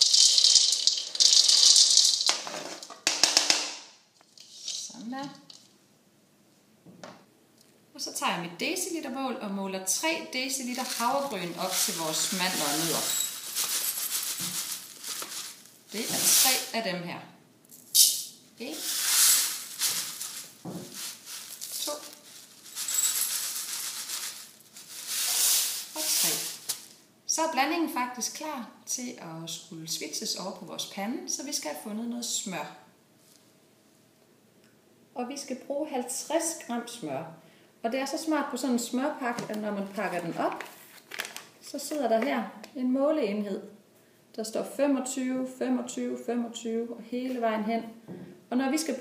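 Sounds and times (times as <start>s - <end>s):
oats pouring into metal cup: 0.0s - 2.5s, 10.7s - 16.7s, 18.7s - 26.9s
bag crinkling: 0.0s - 2.9s, 10.6s - 16.7s, 18.8s - 27.0s, 40.0s - 41.5s
nuts rattling into plastic bowl: 0.0s - 3.8s, 4.4s - 5.6s, 10.7s - 16.7s, 18.8s - 26.9s.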